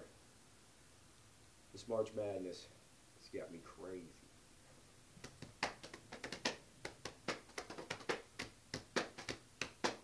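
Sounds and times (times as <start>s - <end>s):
hands slapping body: 5.2s - 10.0s.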